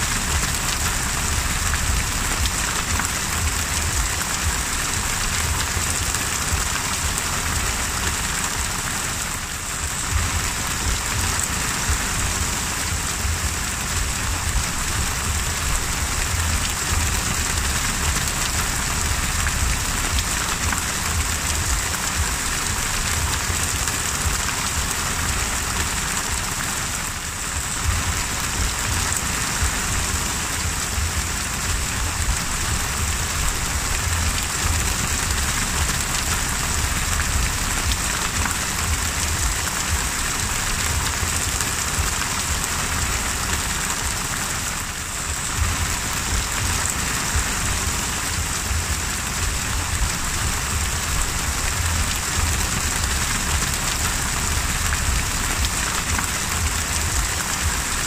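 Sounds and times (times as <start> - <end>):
heavy rain on the sea: 0.0 - 58.0.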